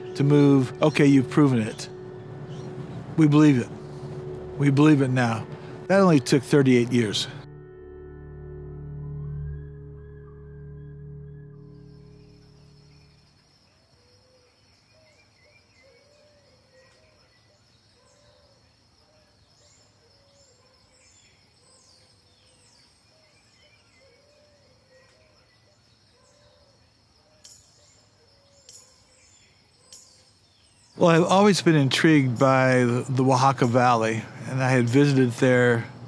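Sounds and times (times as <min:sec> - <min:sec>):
birds chirping: 0:00.0 - 0:07.5, 0:10.5 - 0:36.0
soft low repeating call: 0:00.0 - 0:07.5
high insect trill: 0:11.6 - 0:15.5, 0:18.3 - 0:36.0.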